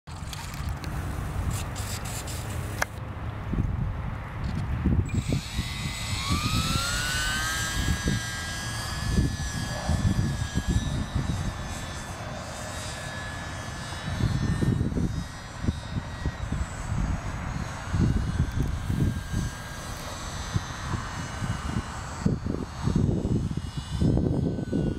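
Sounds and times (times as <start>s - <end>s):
model plane motor whine: 0.1s - 3.1s, 4.5s - 24.9s
wind rumble on microphone: 0.1s - 24.9s.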